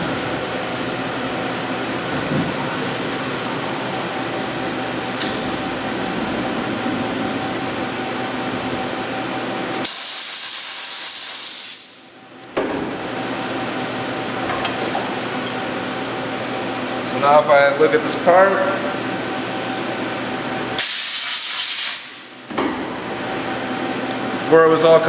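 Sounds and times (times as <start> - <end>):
loud hiss: 9.9 - 12.0, 20.8 - 22.3.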